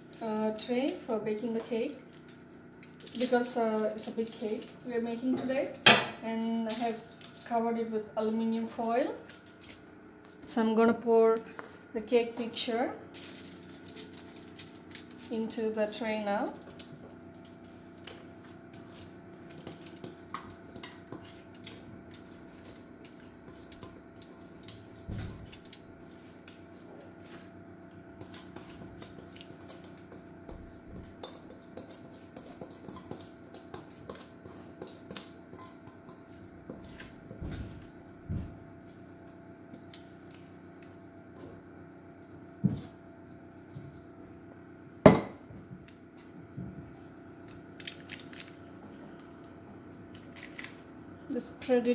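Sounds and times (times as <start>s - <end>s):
utensil scraping metal bowl: 18.3s - 24.7s, 28.2s - 37.4s.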